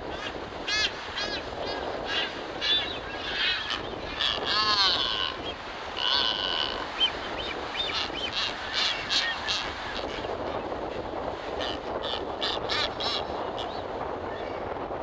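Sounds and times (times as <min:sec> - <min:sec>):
wind hiss: 0:00.0 - 0:15.0
birds whistling and honking: 0:00.7 - 0:10.3.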